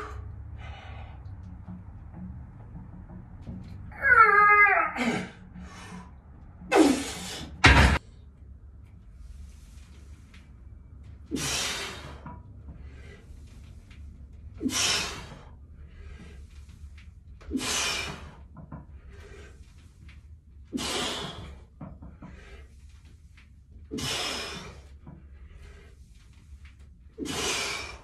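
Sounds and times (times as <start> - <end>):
person breathing hard: 0.0 - 1.4, 14.6 - 16.8, 17.4 - 19.9, 20.7 - 22.9, 23.9 - 26.3, 27.2 - 28.0
low hum: 0.0 - 20.8.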